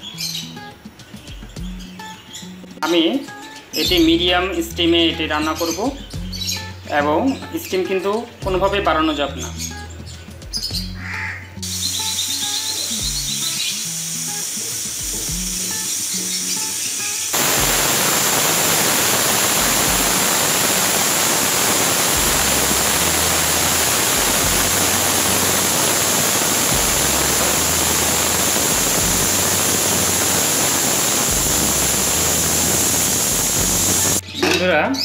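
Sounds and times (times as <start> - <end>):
pressure cooker whistle hissing: 11.6 - 34.2.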